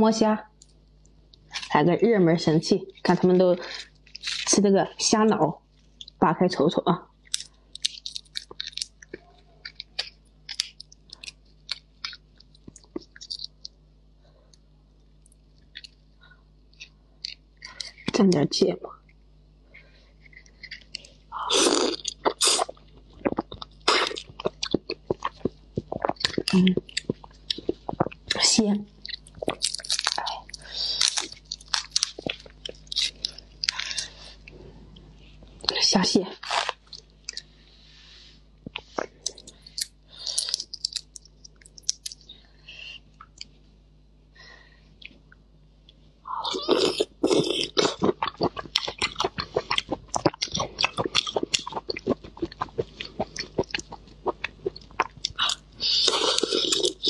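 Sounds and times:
wet mouth chewing: 0:20.2 - 0:28.4, 0:29.0 - 0:34.6, 0:36.4 - 0:37.5, 0:38.7 - 0:42.2, 0:46.5 - 0:57.0.

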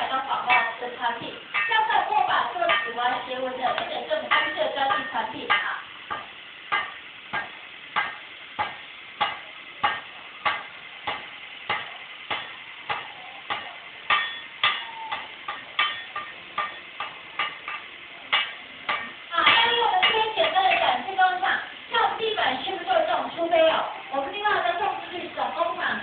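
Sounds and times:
machine hammer striking steel: 0:01.5 - 0:20.8.

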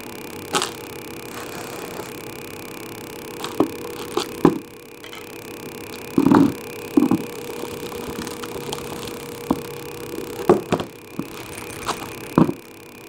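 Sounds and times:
containers knocking: 0:03.4 - 0:12.7
soil pouring into pot: 0:05.1 - 0:12.6.

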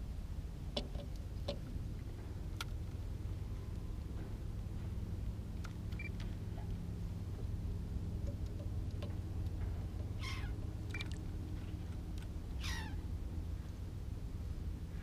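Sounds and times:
steady low hum: 0:00.0 - 0:15.0
animal cries falling in pitch: 0:12.6 - 0:13.0.

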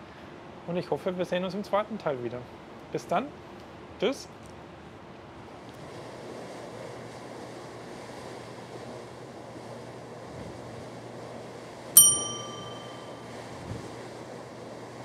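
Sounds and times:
wind: 0:00.0 - 0:15.0
bell-like ding: 0:12.0 - 0:13.3
sea noise: 0:12.0 - 0:13.4.

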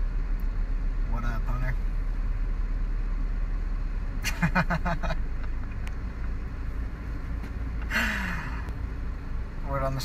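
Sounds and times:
car cabin rumble: 0:00.0 - 0:10.0
man laughing: 0:04.2 - 0:05.8.

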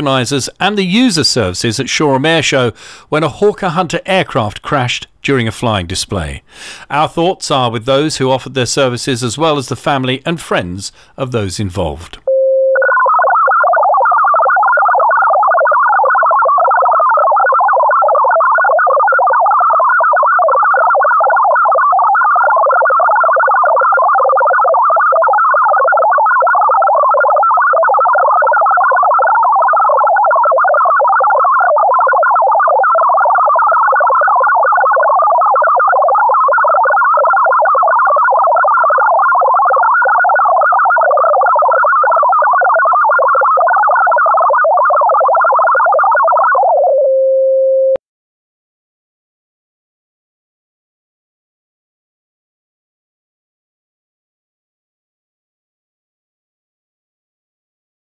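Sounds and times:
digital data signal warble: 0:12.9 - 0:47.3.

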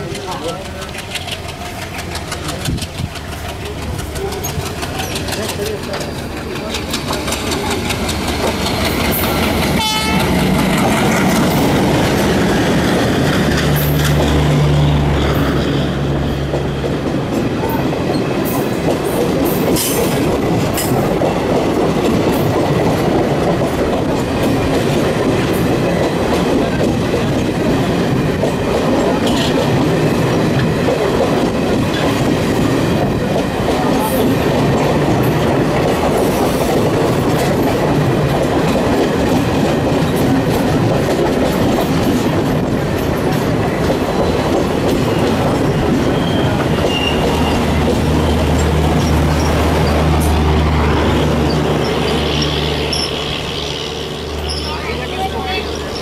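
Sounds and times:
train coaches rumbling: 0:00.0 - 0:56.0
wheel clatter over rail joints: 0:00.0 - 0:56.0
locomotive droning past: 0:03.3 - 0:17.8, 0:43.1 - 0:56.0.

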